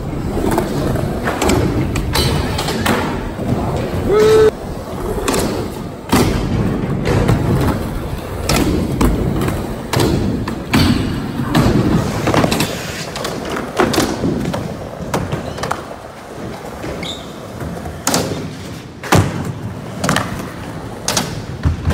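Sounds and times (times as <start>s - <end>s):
skateboards rolling on concrete: 0.0s - 21.9s
skateboard thuds and clacks: 5.1s - 17.0s.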